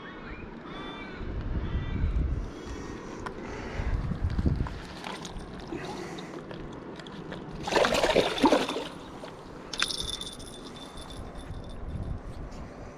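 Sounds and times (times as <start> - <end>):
water splashing around rocks: 7.1 - 9.3.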